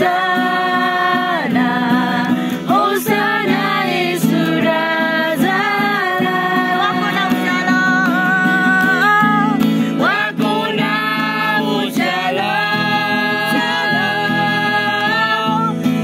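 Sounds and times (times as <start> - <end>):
strummed acoustic guitar: 0.0 - 16.0
women singing: 0.0 - 16.0.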